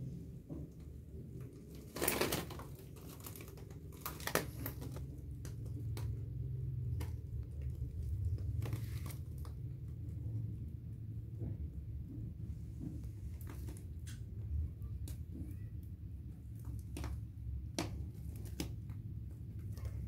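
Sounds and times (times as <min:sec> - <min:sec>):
low handling rumble: 0:02.7 - 0:17.7.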